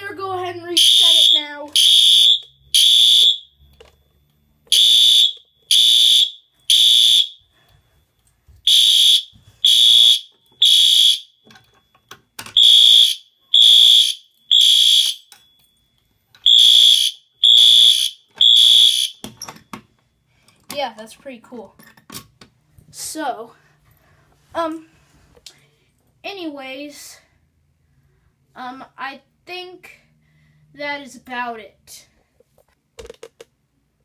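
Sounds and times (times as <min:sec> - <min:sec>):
fire alarm horn blasts: 0:00.8 - 0:03.6, 0:04.7 - 0:07.6, 0:08.6 - 0:11.5, 0:12.6 - 0:15.3, 0:16.4 - 0:19.3.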